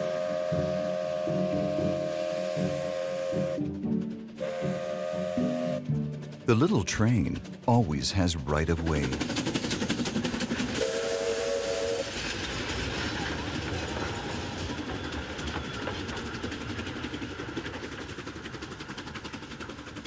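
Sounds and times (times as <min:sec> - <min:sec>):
steam whistle blast: 0:00.0 - 0:03.7, 0:04.4 - 0:05.9, 0:10.8 - 0:12.2
train clattering: 0:00.0 - 0:20.0.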